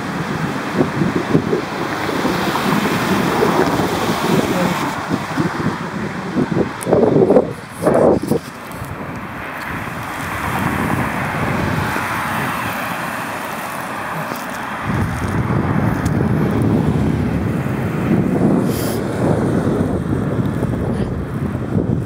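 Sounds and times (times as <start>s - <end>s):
low wind buffeting: 0.0s - 22.0s
road noise hiss: 0.0s - 22.0s
wind rushing over microphone: 0.0s - 22.0s.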